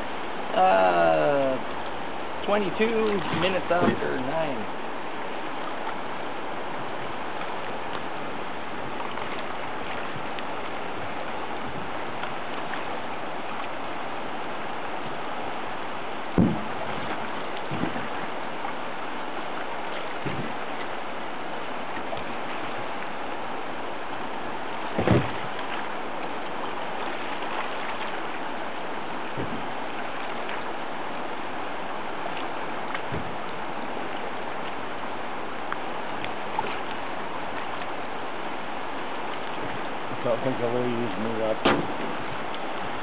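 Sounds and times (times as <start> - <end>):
river water rushing: 0.0 - 43.0
low thumps: 16.3 - 18.2, 24.9 - 25.6, 41.6 - 42.5.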